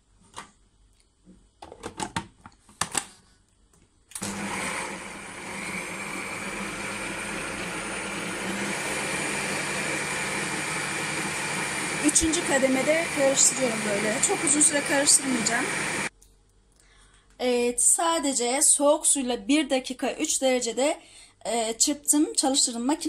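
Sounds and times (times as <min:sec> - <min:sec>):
food processor motor running: 0:04.2 - 0:16.1.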